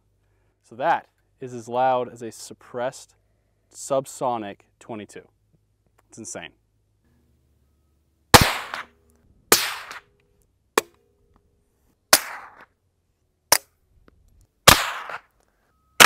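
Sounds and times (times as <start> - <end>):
gunshots: 8.3 - 8.9, 9.5 - 10.0, 12.1 - 12.7, 14.7 - 15.3.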